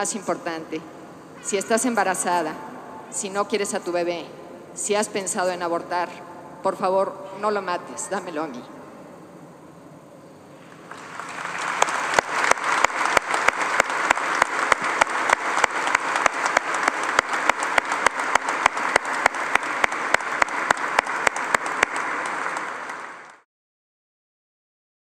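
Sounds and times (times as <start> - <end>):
crowd applauding: 10.6 - 23.4
loud close clapping: 10.6 - 23.4.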